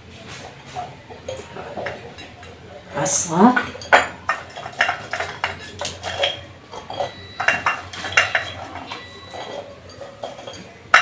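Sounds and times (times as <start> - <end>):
garlic cloves clinking against glass: 3.6 - 11.0.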